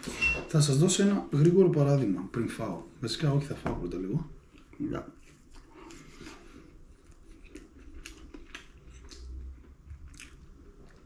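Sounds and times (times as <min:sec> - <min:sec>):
chewing: 0:04.5 - 0:11.0.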